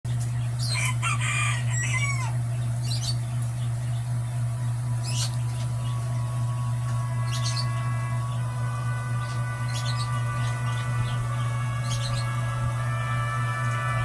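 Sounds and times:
low drone: 0:00.1 - 0:14.0
bird-like chirps: 0:01.8 - 0:08.5, 0:09.2 - 0:12.4
held higher tone: 0:04.7 - 0:14.0.

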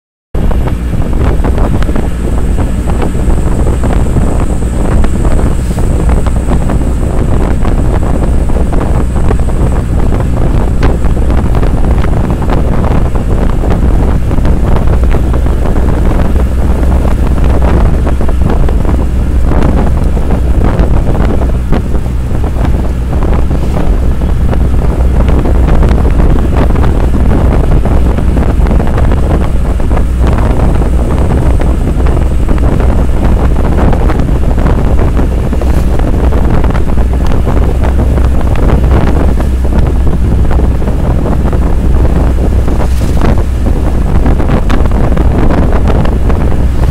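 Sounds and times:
engine and road rumble: 0:00.3 - 0:46.9
wind buffeting microphone: 0:00.4 - 0:46.9.

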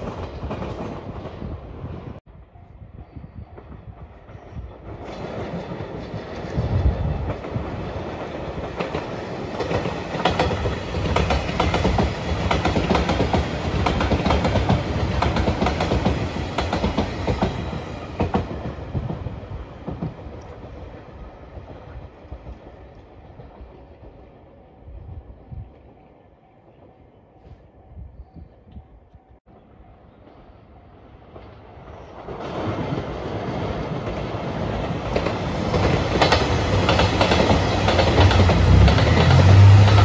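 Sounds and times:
electric train passing: 0:00.0 - 0:40.0.

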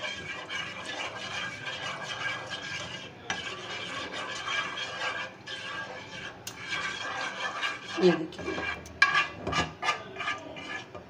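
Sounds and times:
spoon scraping and clinking on pan: 0:00.0 - 0:11.0.

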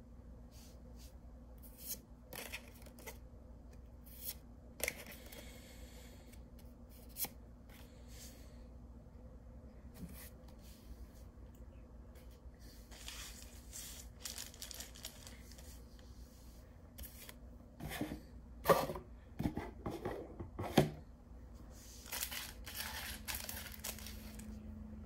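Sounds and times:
rustling and handling noises: 0:12.1 - 0:19.0, 0:21.5 - 0:24.7.

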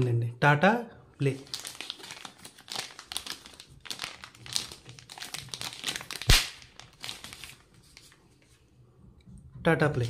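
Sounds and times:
plastic bag crinkling: 0:01.2 - 0:08.2.

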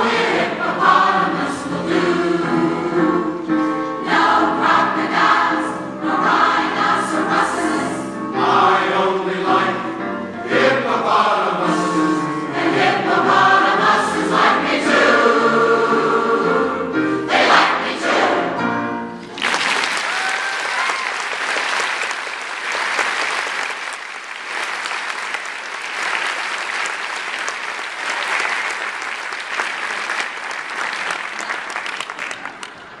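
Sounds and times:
choir singing with piano: 0:00.0 - 0:19.3
audience applause: 0:19.2 - 0:33.0.

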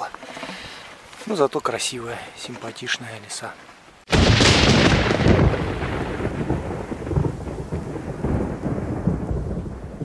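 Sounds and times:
rain-like hiss: 0:00.0 - 0:10.0
rolling thunder rumble: 0:04.1 - 0:10.0
sharp thunder crack: 0:04.1 - 0:10.0.

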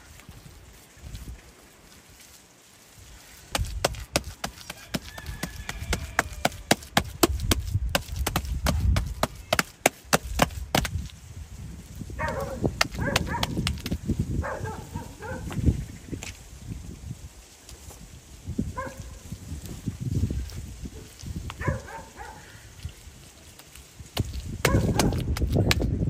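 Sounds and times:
hands slapping wet clay: 0:03.5 - 0:11.1, 0:12.8 - 0:14.0, 0:24.1 - 0:25.9.

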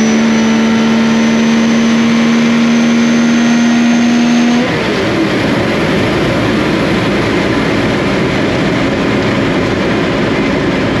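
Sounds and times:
wind rush and rumble: 0:04.7 - 0:11.0.

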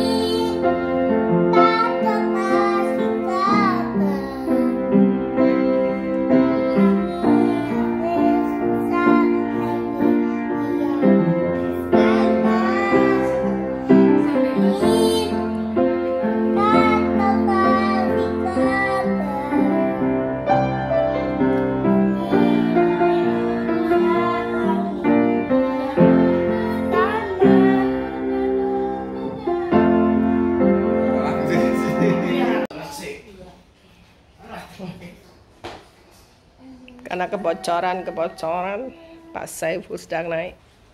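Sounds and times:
girl singing: 0:00.0 - 0:30.5, 0:36.6 - 0:39.5
upright piano playing: 0:00.0 - 0:32.7.

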